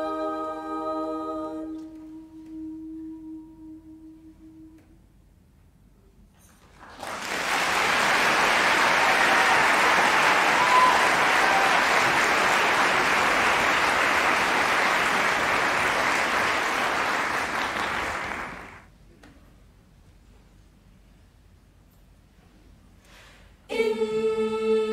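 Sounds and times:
audience applauding: 6.6 - 18.9.

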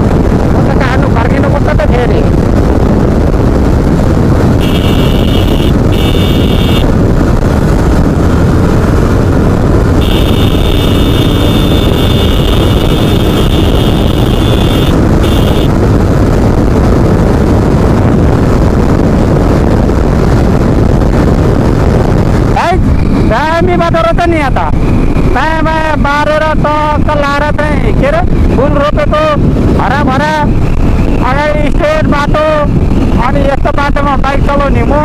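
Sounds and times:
motorcycle engine rumble: 0.0 - 33.2
wind on microphone: 0.0 - 35.0
high thin buzzing tone: 4.6 - 6.8, 10.0 - 15.7.

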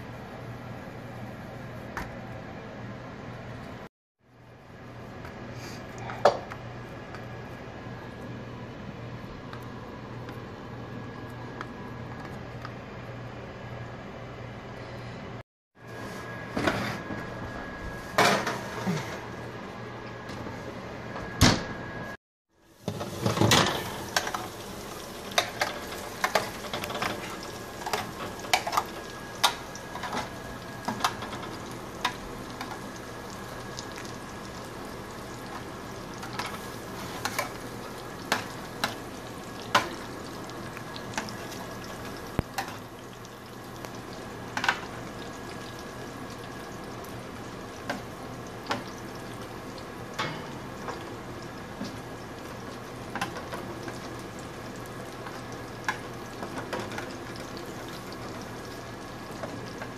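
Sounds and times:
oven door shutting: 21.3 - 21.8
meatballs sizzling in oil: 22.6 - 59.9.

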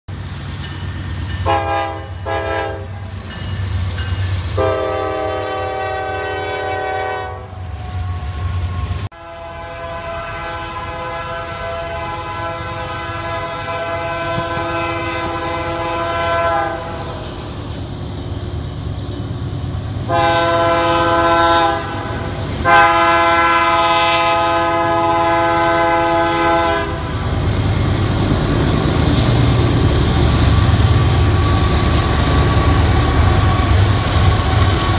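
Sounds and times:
train rumble: 0.1 - 34.9
diesel locomotive horn: 1.4 - 3.1, 4.6 - 17.2, 20.0 - 27.8, 29.2 - 34.9.

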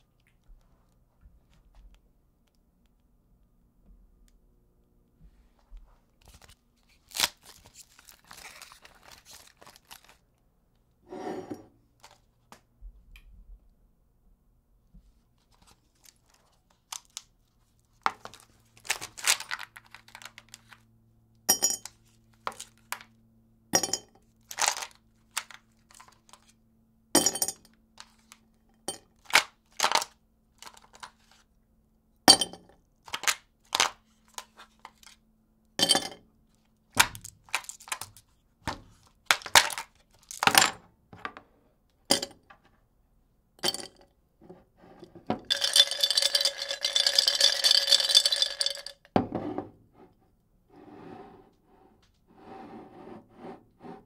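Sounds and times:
ice cubes clinking into glass: 45.4 - 49.0
ice rattling in jar: 45.4 - 49.0.

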